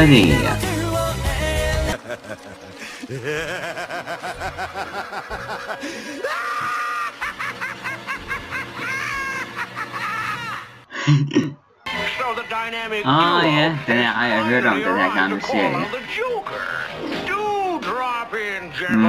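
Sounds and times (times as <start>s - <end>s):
loud rhythmic laughter: 1.4s - 12.9s.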